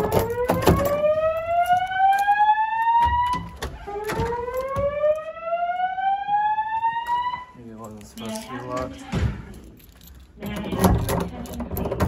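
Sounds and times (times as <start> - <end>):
fire alarm whoop tone: 0.0 - 7.6.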